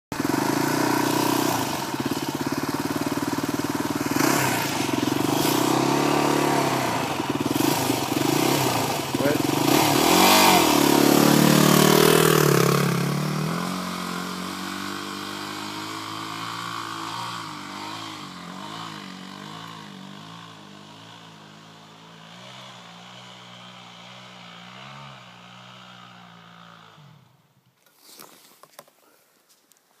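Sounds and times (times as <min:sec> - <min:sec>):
motorcycle riding away: 0:00.2 - 0:27.6.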